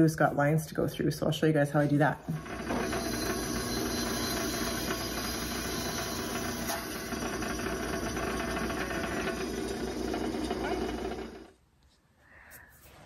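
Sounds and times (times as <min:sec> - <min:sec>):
table saw cutting wood: 0:02.2 - 0:11.5.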